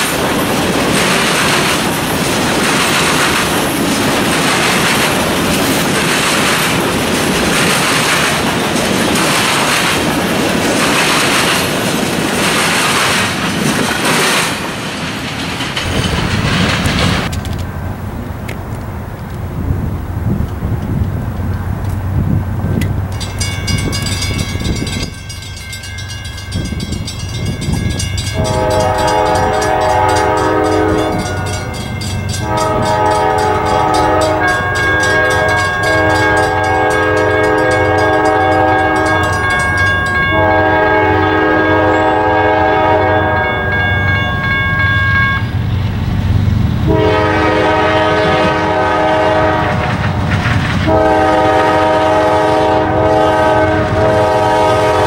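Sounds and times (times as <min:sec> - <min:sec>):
locomotive engine rumble: 0:00.0 - 0:43.4, 0:45.4 - 0:55.0
crossing signal bell dinging: 0:23.1 - 0:45.7
locomotive air horn blasts: 0:28.3 - 0:31.8, 0:32.4 - 0:39.4, 0:40.2 - 0:43.8, 0:46.9 - 0:50.0, 0:50.8 - 0:55.0.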